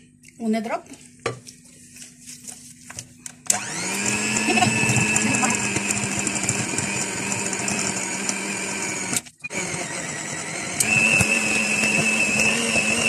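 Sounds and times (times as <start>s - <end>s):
electric hand mixer beating batter: 3.5s - 13.0s.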